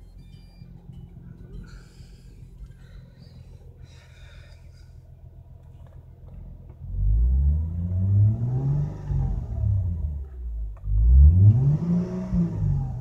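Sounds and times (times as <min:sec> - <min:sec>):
car engine revving: 0:05.6 - 0:13.0.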